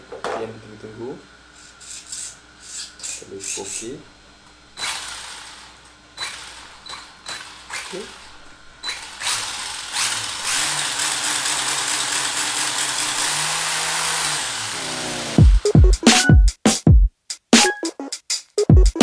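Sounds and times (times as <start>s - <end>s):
electric motor whirring: 4.8s - 8.3s, 8.9s - 15.7s.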